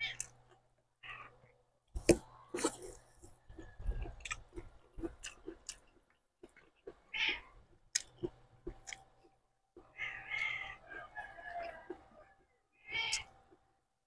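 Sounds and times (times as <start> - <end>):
wet chewing and lip smacking: 2.0 - 12.2, 13.0 - 13.6.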